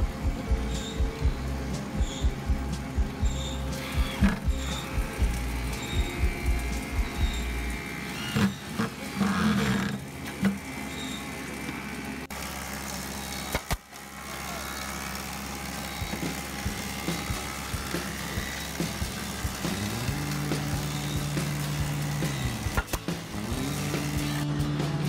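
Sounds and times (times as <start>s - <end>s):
steady low hum: 0.0s - 12.3s
electric drill driving screws: 0.6s - 24.5s
nail gun snaps: 13.5s - 13.9s, 22.7s - 23.1s.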